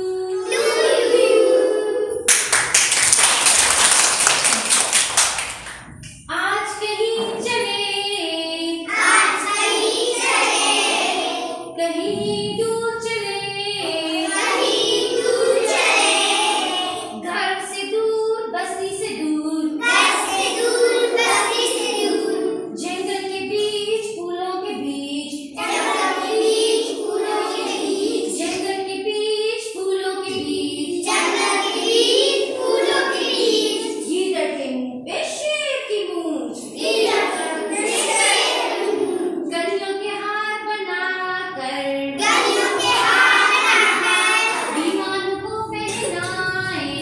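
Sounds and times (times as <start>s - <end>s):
children singing in unison: 0.0s - 2.3s, 7.1s - 18.5s, 19.1s - 23.6s, 24.6s - 29.0s, 29.7s - 34.3s, 36.6s - 39.8s, 41.5s - 47.0s.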